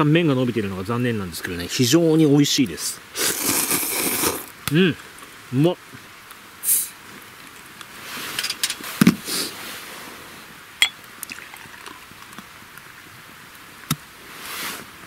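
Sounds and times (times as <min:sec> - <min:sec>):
glass clinks: 0:10.8 - 0:11.6
beer pouring into a glass: 0:10.8 - 0:12.4.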